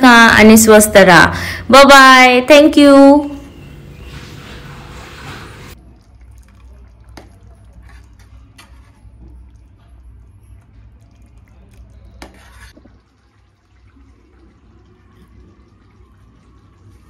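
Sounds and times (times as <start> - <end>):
liquid dripping off ladle: 5.8 - 17.0.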